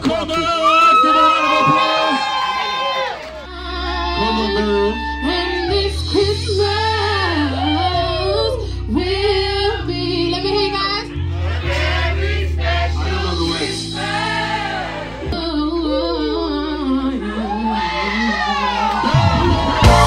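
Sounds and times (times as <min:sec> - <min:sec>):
low backing chords: 0:03.3 - 0:20.0
woman singing into microphone: 0:03.5 - 0:11.1, 0:15.3 - 0:19.9.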